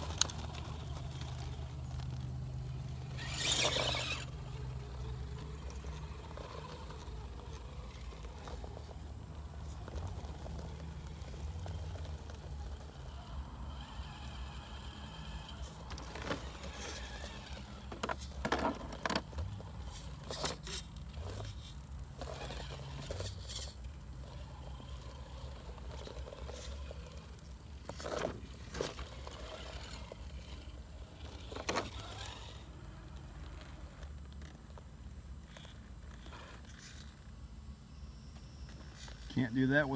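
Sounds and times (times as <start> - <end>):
tyres scraping and knocking on concrete: 14.5 - 24.4.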